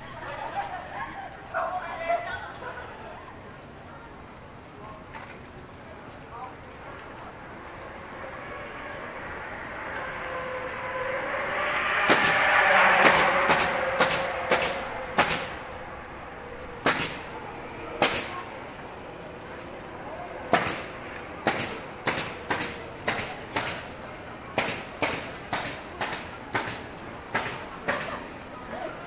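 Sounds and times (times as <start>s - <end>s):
car passing: 6.0s - 29.0s.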